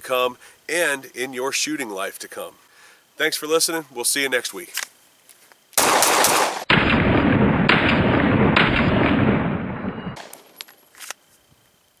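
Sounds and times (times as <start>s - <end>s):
pistol shots: 5.8s - 10.5s.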